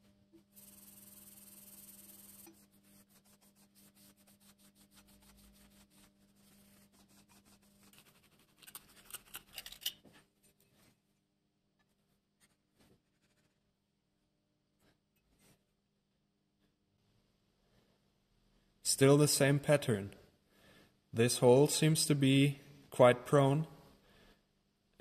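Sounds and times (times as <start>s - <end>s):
scraping hiss on abrasive paper: 0.6s - 8.5s
rubbing strokes on abrasive paper: 0.6s - 9.1s.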